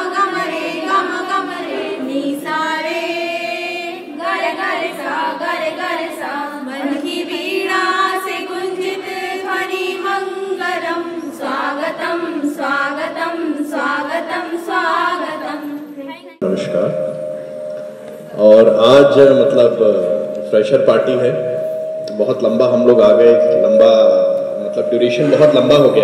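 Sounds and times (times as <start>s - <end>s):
women singing together: 0.0s - 16.1s.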